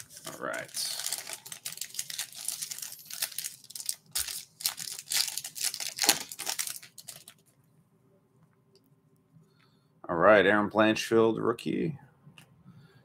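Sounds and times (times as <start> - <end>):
plastic wrapper tearing and crinkling: 0.0 - 7.4.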